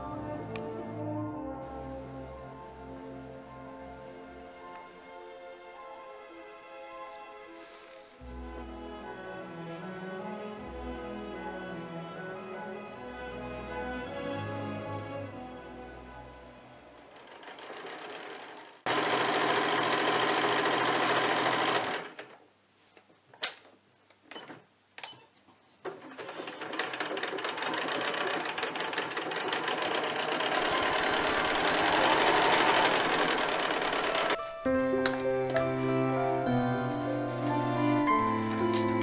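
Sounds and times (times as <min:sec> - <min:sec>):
sewing machine stitching: 0:17.1 - 0:22.4, 0:25.8 - 0:34.4.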